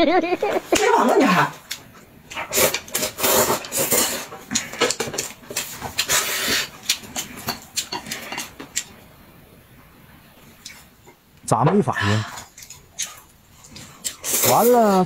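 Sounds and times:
noodles being slurped: 0:02.3 - 0:07.2, 0:12.5 - 0:15.0.

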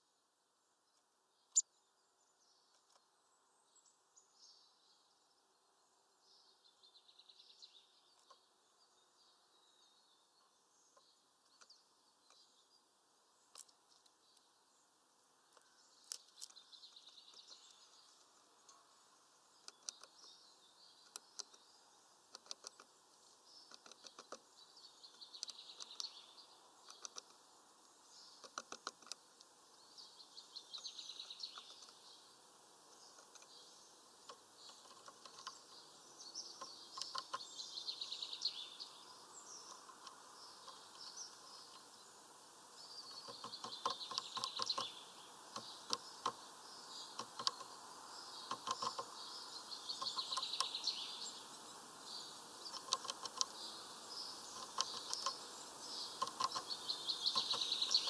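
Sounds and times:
birds chirping and trilling: 0:00.7 - 0:58.0
bird tapping seed on wood: 0:19.6 - 0:20.4, 0:21.0 - 0:21.7, 0:22.3 - 0:24.5, 0:25.1 - 0:26.2, 0:26.8 - 0:27.4, 0:28.4 - 0:29.5, 0:33.0 - 0:35.8, 0:36.4 - 0:37.5, 0:39.6 - 0:41.9, 0:43.1 - 0:49.3, 0:49.9 - 0:50.9, 0:52.6 - 0:53.6, 0:54.4 - 0:58.0.

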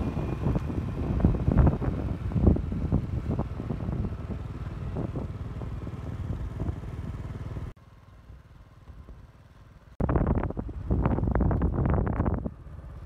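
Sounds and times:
wind buffeting microphone: 0:00.0 - 0:07.4, 0:10.0 - 0:12.7
motorcycle engine running: 0:00.0 - 0:13.0.

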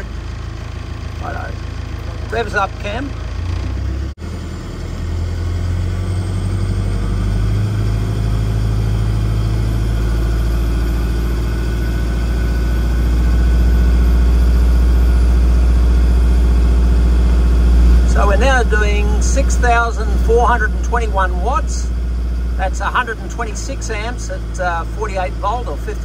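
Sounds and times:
diesel truck engine revving: 0:00.0 - 0:26.0.

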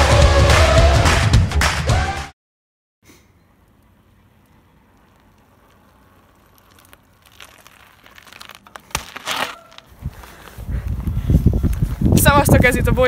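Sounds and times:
crunching crackling noises: 0:03.6 - 0:12.2.

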